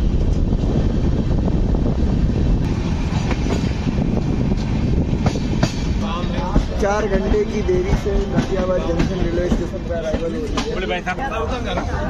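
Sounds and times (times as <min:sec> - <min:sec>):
train wheels rumbling on rail: 0:00.0 - 0:12.0
sharp rail clacks: 0:04.5 - 0:07.3.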